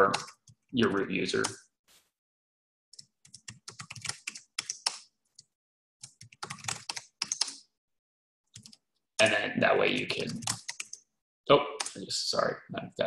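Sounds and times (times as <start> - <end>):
typing on computer keyboard: 3.0 - 5.0, 6.0 - 7.6, 8.5 - 8.8, 10.0 - 11.0.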